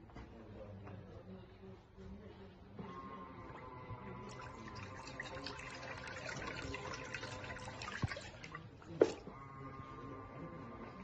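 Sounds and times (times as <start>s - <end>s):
water sloshing in washing machine: 4.2s - 9.3s.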